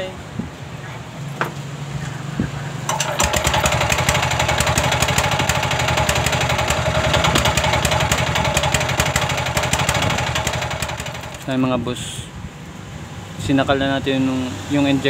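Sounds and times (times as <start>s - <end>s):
diesel engine misfiring: 2.8s - 11.6s.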